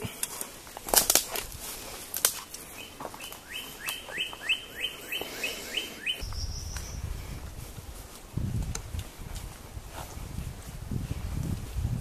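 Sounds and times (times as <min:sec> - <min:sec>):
songbird singing: 0:02.5 - 0:07.4.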